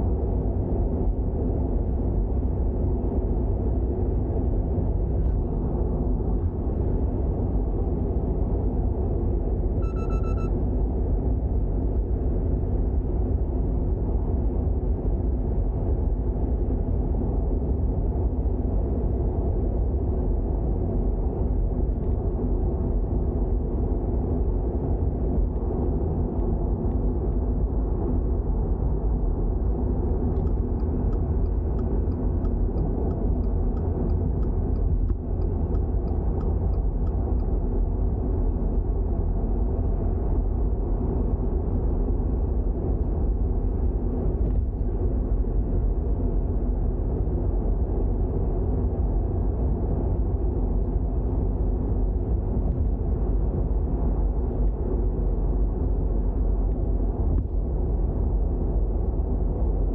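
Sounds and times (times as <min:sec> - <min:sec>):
road noise: 0:00.0 - 0:59.9
brief beep: 0:09.8 - 0:10.6.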